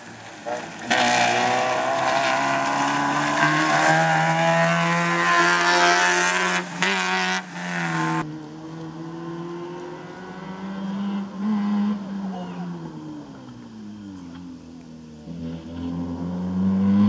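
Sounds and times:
car engine at high revs: 0:00.0 - 0:17.0.

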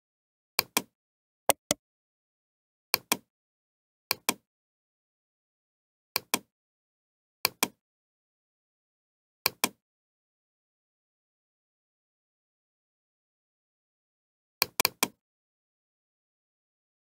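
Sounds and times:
computer mouse clicking: 0:01.5 - 0:01.8.

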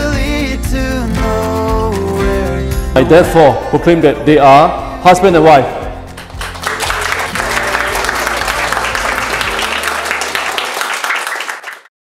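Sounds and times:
music: 0:00.0 - 0:11.9
crowd applauding: 0:06.1 - 0:11.9.

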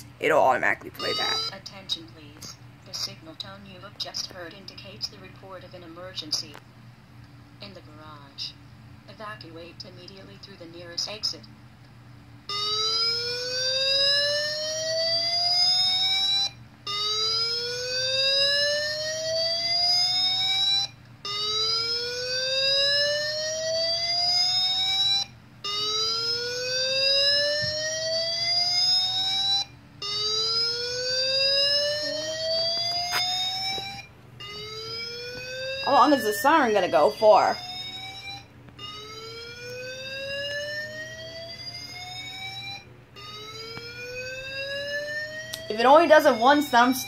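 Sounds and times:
slow-whoop siren through speakers: 0:12.5 - 0:47.0.

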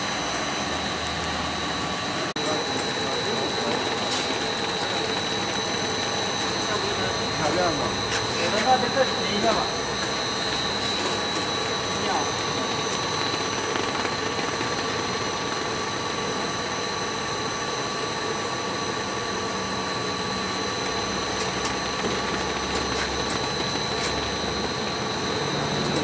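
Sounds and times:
high machine whine: 0:00.0 - 0:26.0
machine hum and hiss: 0:00.0 - 0:26.0.

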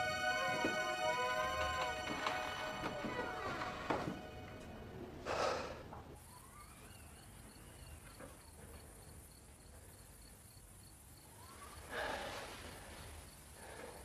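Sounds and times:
crickets chirping: 0:06.2 - 0:14.0.

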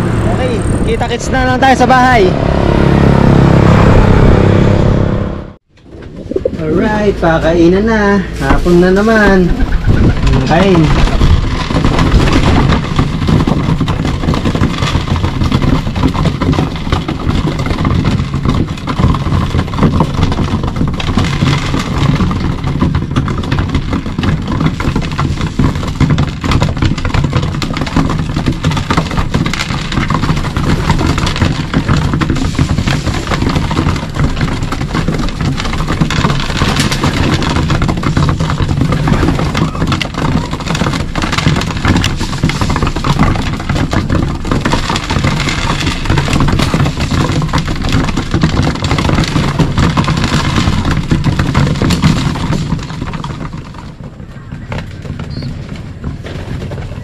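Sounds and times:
steady low rumble: 0:00.0 - 0:11.5
pigeons pecking on wooden floor: 0:06.2 - 0:57.0
wing flap: 0:08.7 - 0:11.6.

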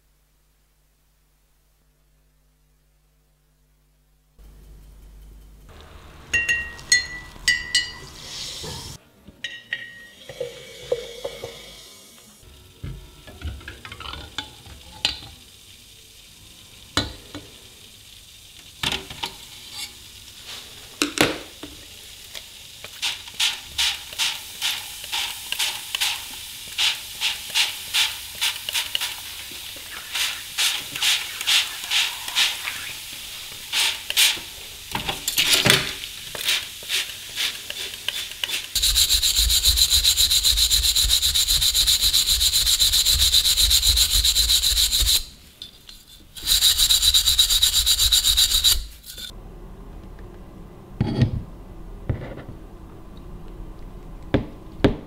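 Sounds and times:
hand scrubbing hissing strokes: 0:08.0 - 0:09.0, 0:19.6 - 0:21.0, 0:23.0 - 0:34.9, 0:36.0 - 0:45.4, 0:46.4 - 0:49.3
rotary wire brush on metal: 0:19.4 - 0:20.1, 0:23.0 - 0:34.4.

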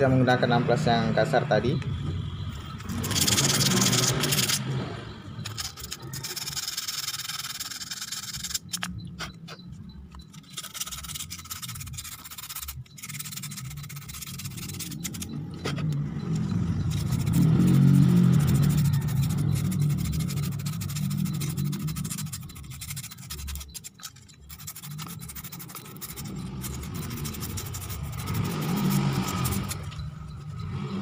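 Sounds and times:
sandpaper scraping by hand: 0:02.8 - 0:04.6, 0:05.4 - 0:09.6, 0:10.3 - 0:15.9, 0:16.8 - 0:29.9.

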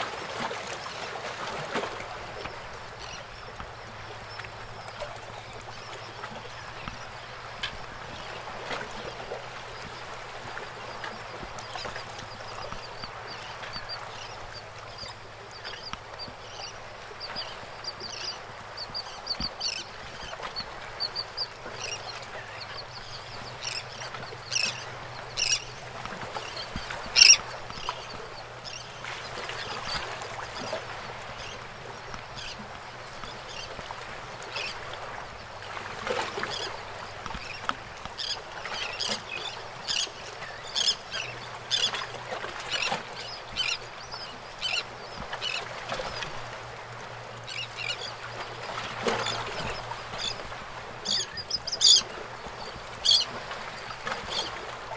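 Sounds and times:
paddle splashes: 0:00.0 - 0:54.9
water lapping: 0:00.0 - 0:54.9
birds calling: 0:10.8 - 0:31.6, 0:34.6 - 0:46.4, 0:48.8 - 0:54.6.

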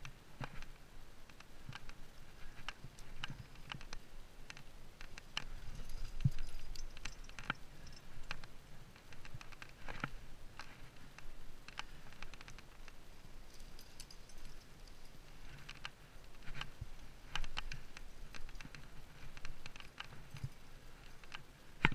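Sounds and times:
metal gear clinking: 0:13.5 - 0:15.2.

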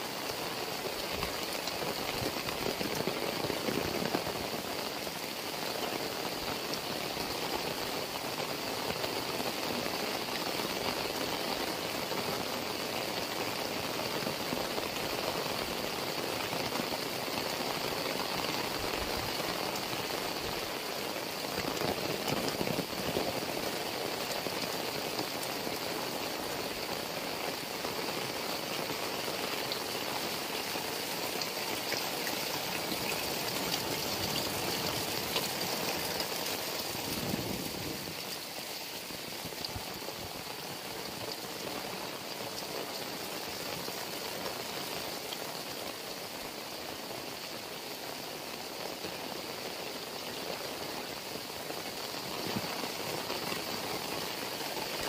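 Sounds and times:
heavy rain falling: 0:00.0 - 0:55.0
raindrops striking plants: 0:00.0 - 0:55.0.

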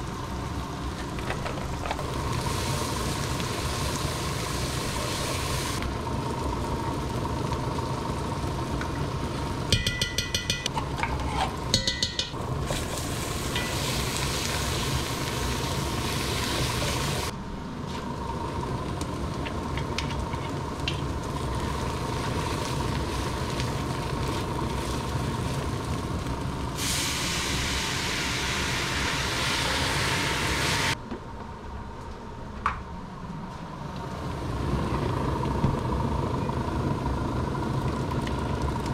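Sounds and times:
onions sizzling in oil: 0:01.8 - 0:09.9, 0:12.4 - 0:17.3, 0:17.9 - 0:31.0.

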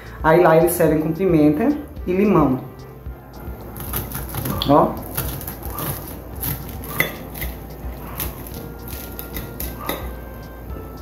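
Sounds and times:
knife cutting crisp crust: 0:03.6 - 0:10.2.

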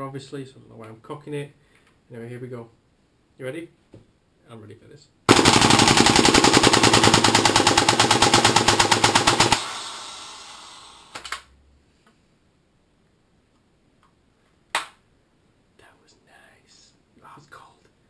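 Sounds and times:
gas hissing: 0:09.5 - 0:11.2.

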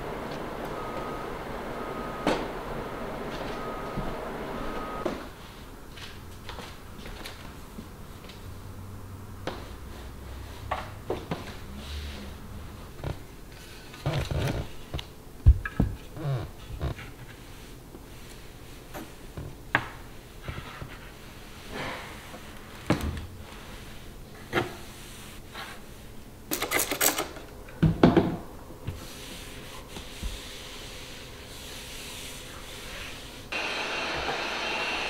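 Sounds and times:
steady machine hum: 0:00.0 - 0:05.3, 0:33.5 - 0:35.0
duster brushing over wood: 0:29.0 - 0:35.0.

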